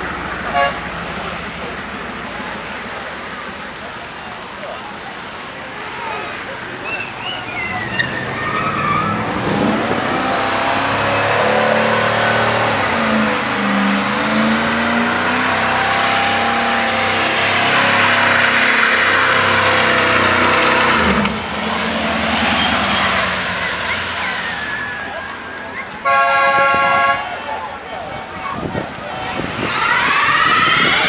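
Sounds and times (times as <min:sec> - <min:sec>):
tyres squealing on asphalt: 0:00.1 - 0:31.0
engine revving hard: 0:08.1 - 0:24.0.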